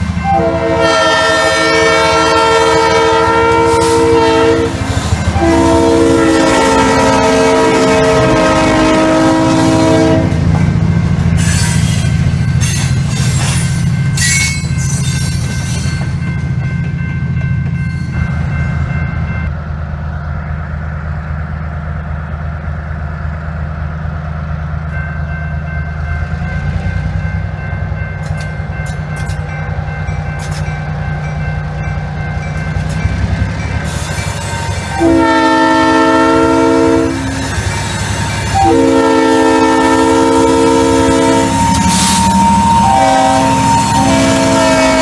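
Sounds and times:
diesel locomotive running: 0.0 - 45.0
locomotive air horn blasts: 0.2 - 10.5, 34.9 - 37.7, 38.5 - 45.0.

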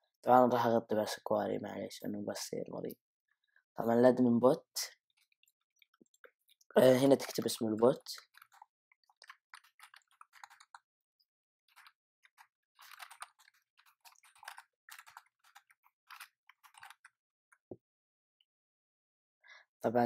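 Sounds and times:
computer keyboard typing: 8.2 - 10.8, 11.7 - 17.1.

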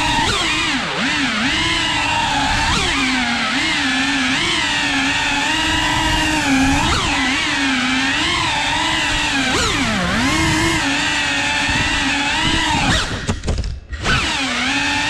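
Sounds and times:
drone propellers whining: 0.0 - 15.0.

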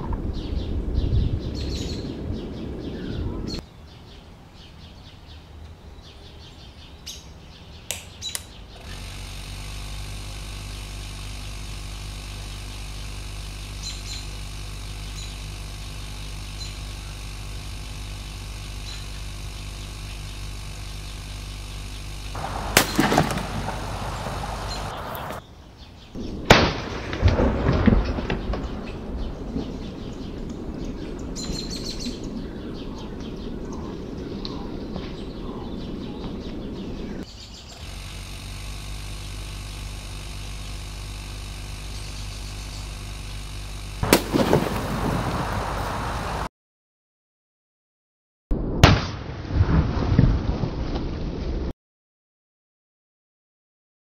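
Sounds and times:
compressor humming: 7.9 - 25.4, 37.7 - 46.5
plastic bottle bursting bang: 22.6 - 23.7, 44.0 - 45.0.

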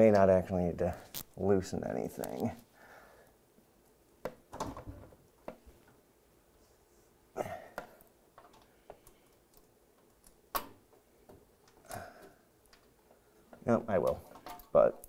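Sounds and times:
short breathy vocal sound: 7.4 - 7.8.

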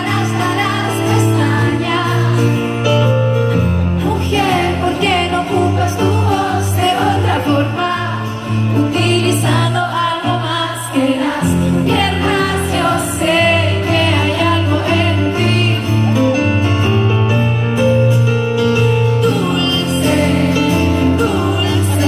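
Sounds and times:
woman singing: 0.0 - 2.9, 4.0 - 16.2, 19.2 - 22.0
live band music: 0.0 - 22.0
sustained bass notes: 11.4 - 22.0.

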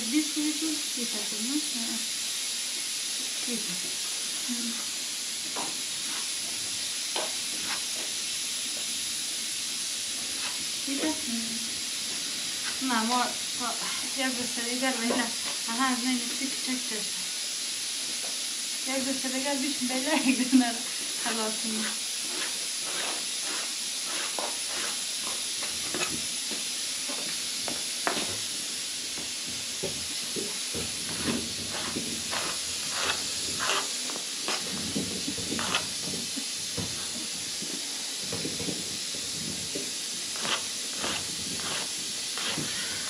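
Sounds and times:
steady hiss: 0.0 - 43.0
hands patting dough: 39.6 - 42.9.

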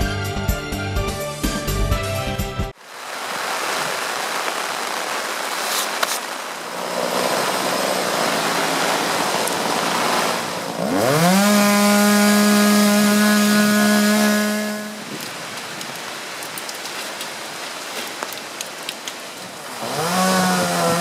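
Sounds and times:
heavy rain and wind hiss: 2.7 - 11.9, 13.6 - 21.0
chainsaw revving and cutting: 6.7 - 15.1, 19.7 - 21.0.

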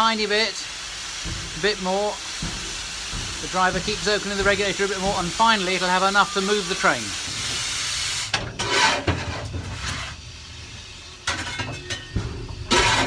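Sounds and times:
steam hissing: 0.0 - 13.0
metal clanks and knocks: 1.1 - 5.8, 8.3 - 10.2, 11.2 - 13.0.

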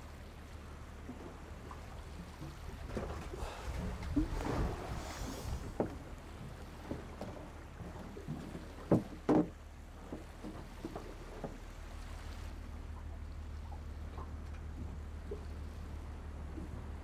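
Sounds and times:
boat low rumble: 0.0 - 17.0
wooden knocks: 8.9 - 11.6.

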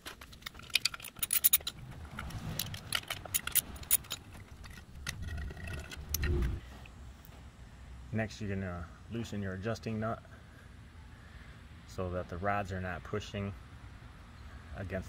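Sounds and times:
socket wrench clinking on metal: 0.0 - 6.2
low rumble: 1.6 - 6.6.

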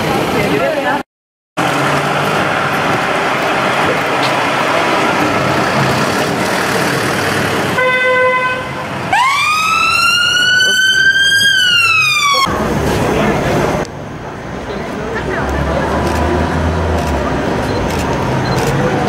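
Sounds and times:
car engines in traffic: 1.6 - 19.0
emergency vehicle siren wailing: 9.1 - 12.7.

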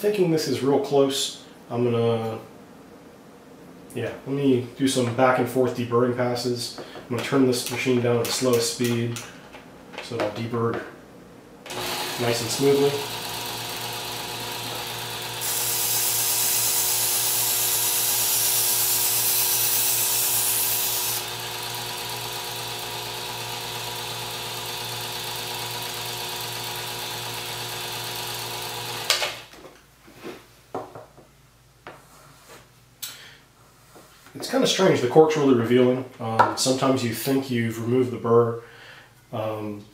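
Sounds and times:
belt sharpener motor running: 11.7 - 29.4.

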